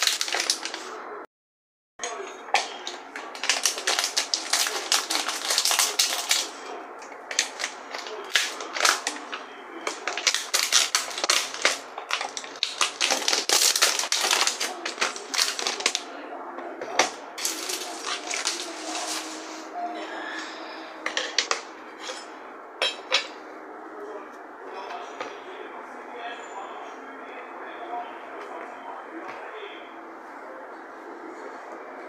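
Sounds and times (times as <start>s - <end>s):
plastic wrap crinkling: 0.0s - 1.0s, 2.5s - 6.7s, 7.3s - 16.0s, 17.4s - 19.5s.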